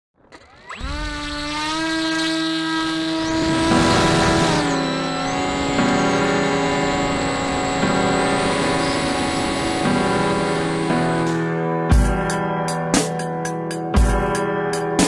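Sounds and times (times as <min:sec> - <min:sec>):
model aircraft motor whining: 0:00.2 - 0:11.6.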